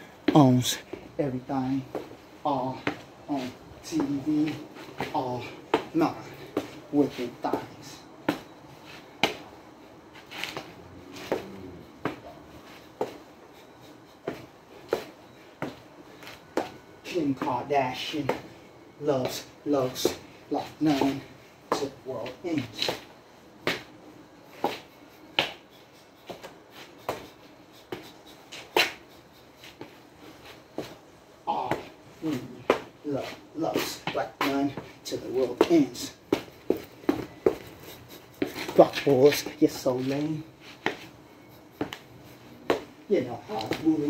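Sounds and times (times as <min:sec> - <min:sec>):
dance steps hitting concrete: 0:33.7 - 0:41.1, 0:41.8 - 0:44.0.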